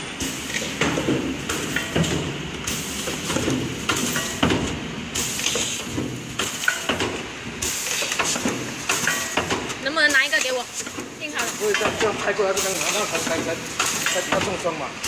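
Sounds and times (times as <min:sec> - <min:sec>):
machine hiss: 0:00.0 - 0:15.0
machine clattering: 0:00.2 - 0:14.8.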